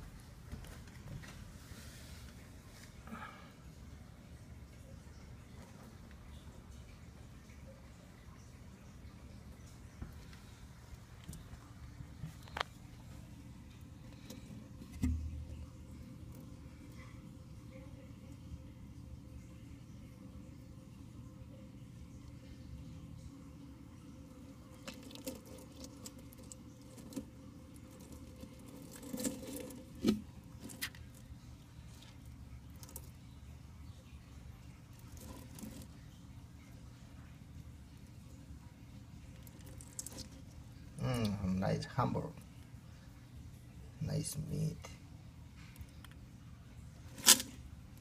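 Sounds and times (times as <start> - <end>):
faint steady hum: 0.0 - 48.0
turtle eating with light taps: 9.6 - 18.4, 24.2 - 41.4, 45.5 - 48.0.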